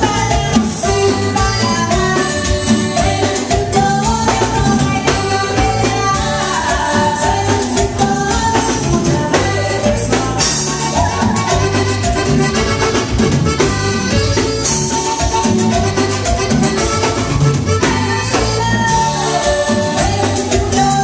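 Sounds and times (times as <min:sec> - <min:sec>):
women singing: 0:00.0 - 0:12.3, 0:17.7 - 0:21.0
accordion: 0:00.0 - 0:21.0
acoustic guitar: 0:00.0 - 0:21.0
drums: 0:00.0 - 0:21.0.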